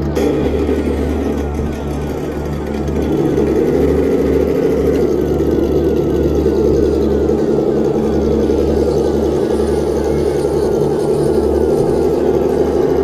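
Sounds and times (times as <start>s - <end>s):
toy truck motor drone: 0.0s - 13.0s.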